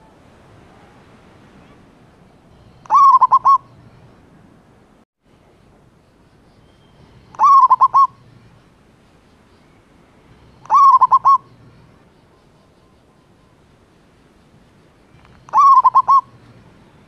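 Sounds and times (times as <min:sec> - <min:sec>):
dove cooing: 0:02.6 - 0:03.8, 0:07.3 - 0:08.2, 0:10.4 - 0:11.7, 0:15.3 - 0:16.5.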